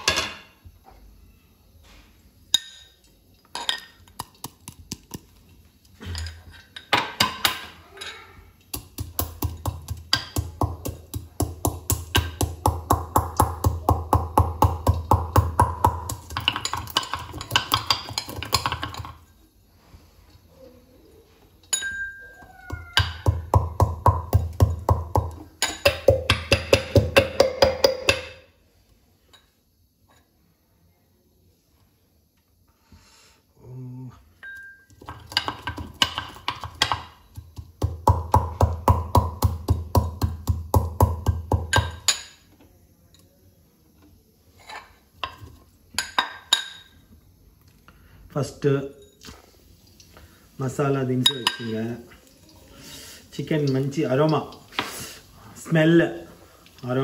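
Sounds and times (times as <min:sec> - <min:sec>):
metal pestle pounding in mortar: 0:08.7 - 0:19.1, 0:23.0 - 0:28.4, 0:35.0 - 0:42.3.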